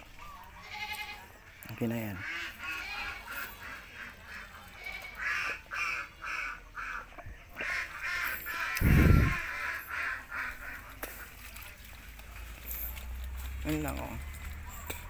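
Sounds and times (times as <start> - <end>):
fowl calling: 2.0 - 12.0.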